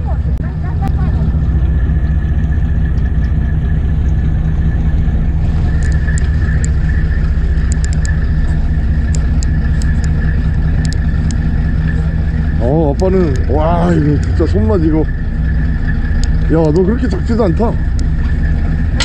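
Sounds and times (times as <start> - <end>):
boat engine droning: 0.0 - 19.0
thin steady whine: 0.0 - 19.0
light clicks: 7.6 - 8.2.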